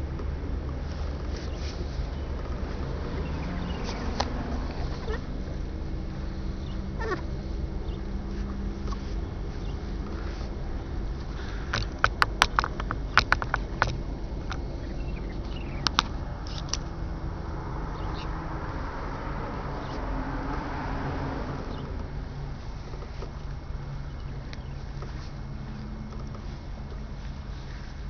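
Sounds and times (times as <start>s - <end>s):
boat engines droning: 0.0s - 28.0s
sharp clicks and knocks: 11.1s - 16.9s.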